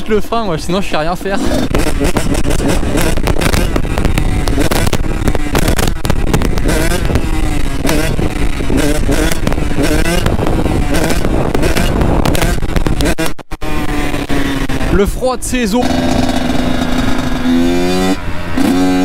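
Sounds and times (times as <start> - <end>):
motocross engine revving: 0.0 - 19.0
wind buffeting microphone: 1.5 - 18.6.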